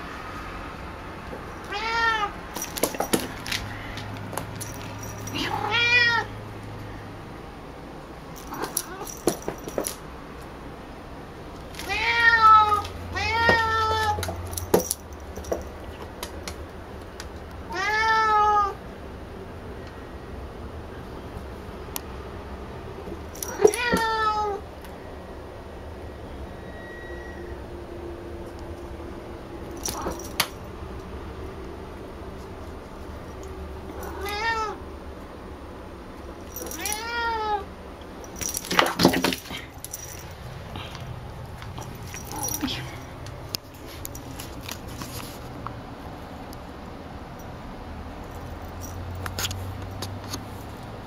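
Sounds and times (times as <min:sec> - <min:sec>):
cat meowing: 0:01.6 - 0:02.4, 0:05.3 - 0:06.4, 0:08.4 - 0:09.2, 0:11.8 - 0:14.3, 0:17.7 - 0:18.8, 0:23.4 - 0:24.6, 0:34.0 - 0:34.8, 0:36.6 - 0:37.7.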